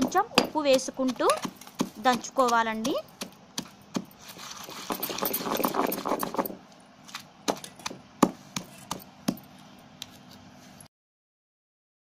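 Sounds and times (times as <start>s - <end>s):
stone pestle crushing in mortar: 0.0s - 10.3s
pestle dull knocks: 7.5s - 9.4s.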